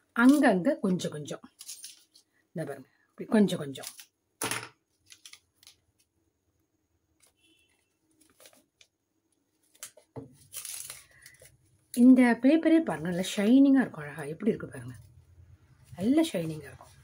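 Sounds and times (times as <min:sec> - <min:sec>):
paper rustling: 0:01.5 - 0:02.3, 0:07.2 - 0:11.6.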